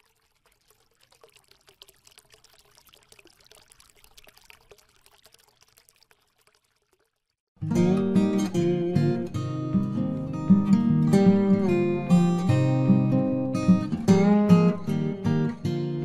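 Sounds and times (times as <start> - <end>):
trickling water: 0.0 - 7.6.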